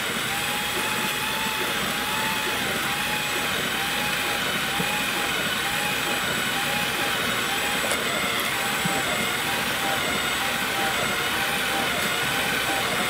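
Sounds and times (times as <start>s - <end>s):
power drill motor whine: 0.0s - 13.0s.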